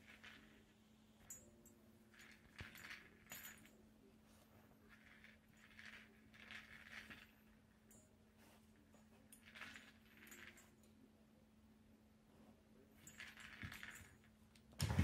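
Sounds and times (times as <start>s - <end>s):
kibble rattling inside treat ball: 4.9s - 7.5s.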